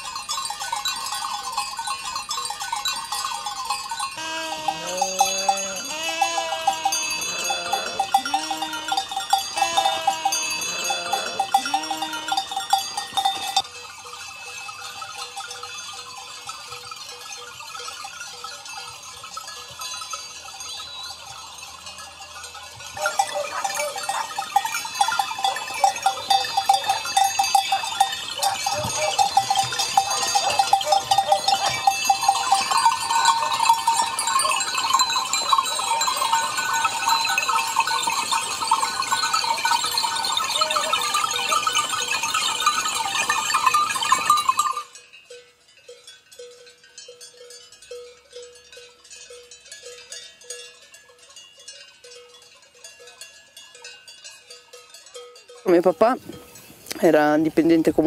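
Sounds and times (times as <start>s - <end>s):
neck bells clanking: 0.0s - 58.0s
sheep and goats bleating: 4.2s - 13.6s, 23.0s - 32.9s.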